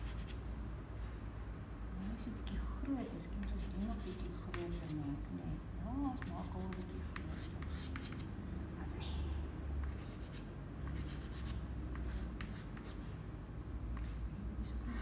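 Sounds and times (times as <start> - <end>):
pastel scratching on paper: 0.0 - 0.4, 3.5 - 5.2, 6.1 - 8.3, 10.0 - 13.0
low steady hum: 0.0 - 15.0.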